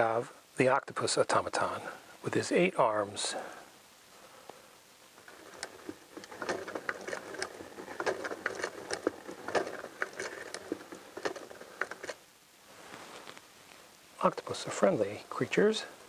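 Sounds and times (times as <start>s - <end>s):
clockwork mechanism clicking: 5.2s - 12.2s.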